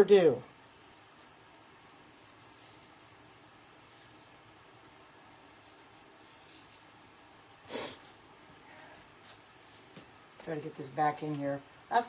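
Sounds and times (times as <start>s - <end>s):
faint low hum: 0.0s - 12.0s
faint scratchy rustles: 0.8s - 4.6s.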